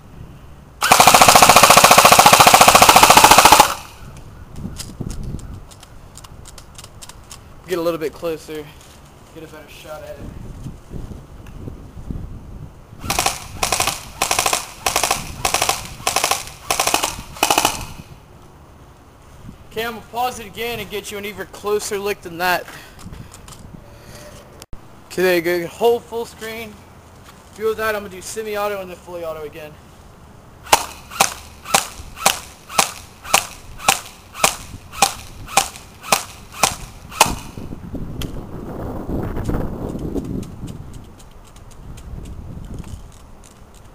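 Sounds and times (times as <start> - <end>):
airsoft gun firing bursts: 0.8 - 4.0, 13.0 - 18.1, 30.7 - 37.6.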